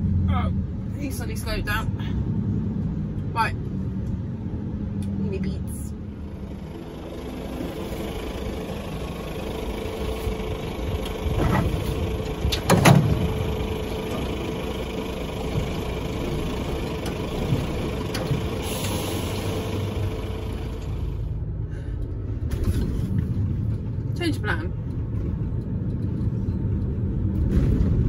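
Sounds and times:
diesel engine running: 0.0 - 28.0
steady tone over engine: 0.0 - 28.0
clunks: 9.7 - 21.2.

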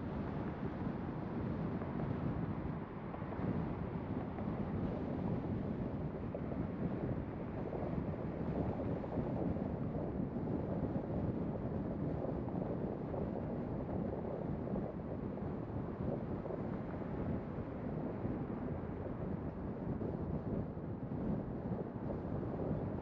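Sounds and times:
car tyres and wind rumble: 0.0 - 23.0.

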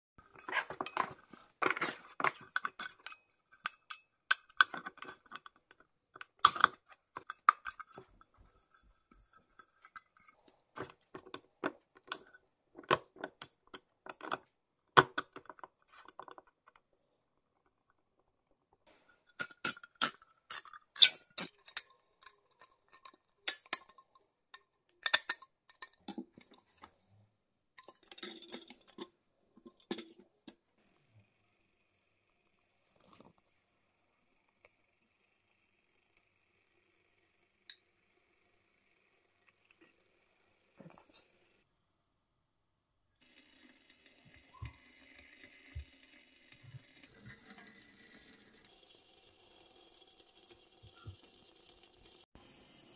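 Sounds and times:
metal tin and lid clinking: 0.3 - 8.1, 19.1 - 26.6.

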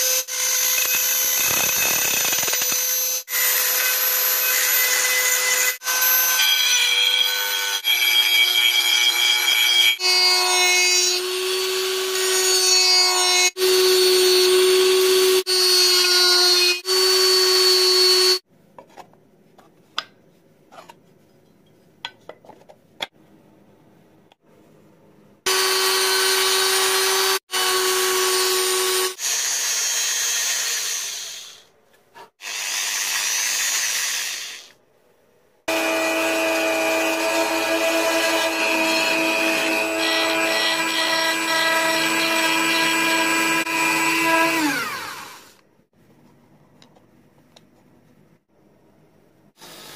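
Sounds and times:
rotary tool grinding whine: 0.0 - 9.9.

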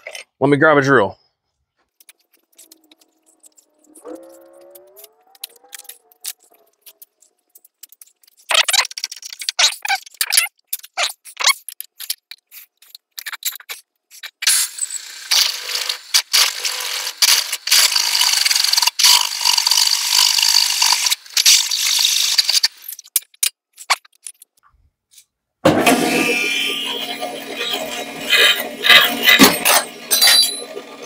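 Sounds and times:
clicking and rattling: 1.8 - 14.5, 22.9 - 25.3
drill press drilling metal: 14.4 - 22.7, 25.8 - 31.0.

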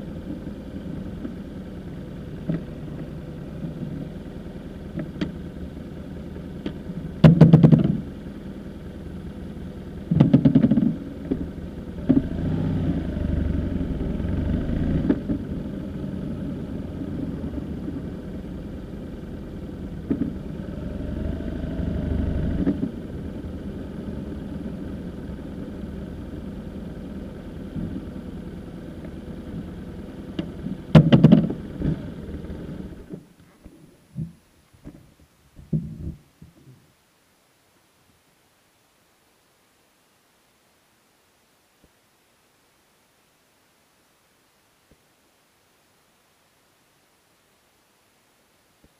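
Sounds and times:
motorcycle engine running: 0.0 - 33.3.

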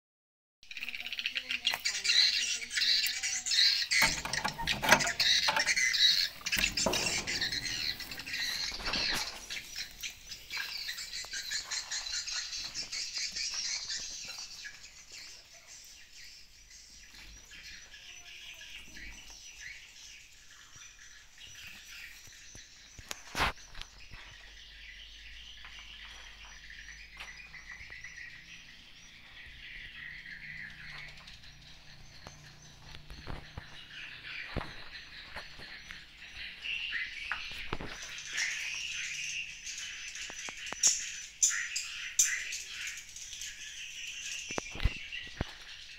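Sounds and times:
knocks: 4.0 - 9.2.

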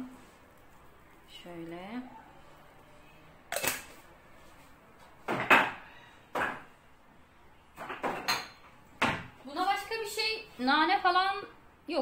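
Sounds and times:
glass jar closed with plastic lid: 3.5 - 3.9.

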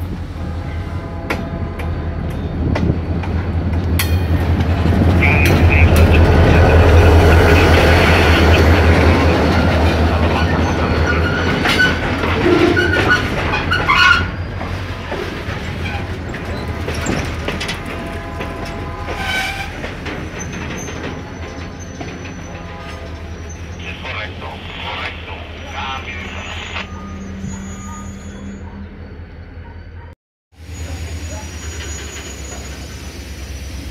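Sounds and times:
locomotive engine drone: 0.0 - 13.8, 21.1 - 33.9
wheels clattering over rail joints: 9.4 - 23.6.

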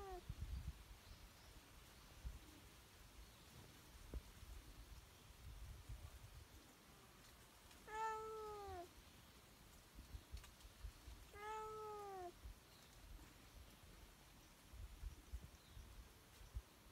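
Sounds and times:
cat meowing: 7.9 - 8.9, 11.3 - 12.3.

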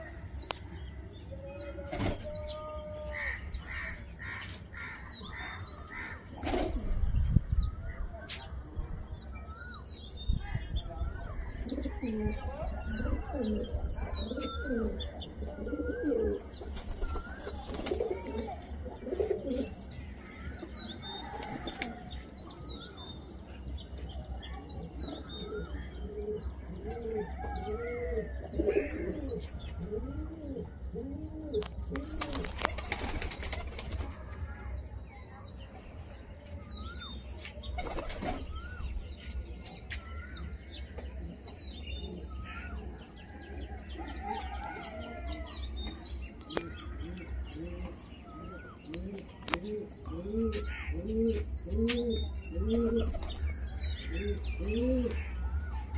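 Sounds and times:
pigeons cooing: 11.6 - 19.8, 25.3 - 33.7, 46.5 - 55.5.

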